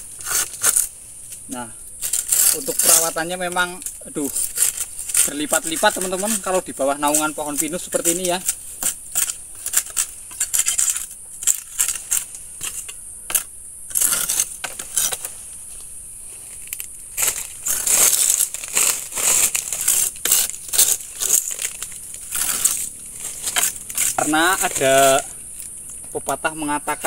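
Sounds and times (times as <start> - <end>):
dry leaves rustling: 0.0 - 27.0
machete chopping stalks: 1.5 - 15.4, 17.1 - 25.3.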